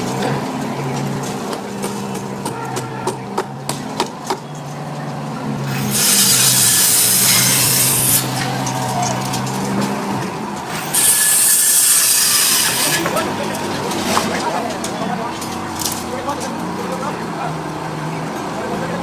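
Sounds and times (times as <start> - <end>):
loud harsh rasping noise: 5.6 - 8.6, 10.7 - 13.4.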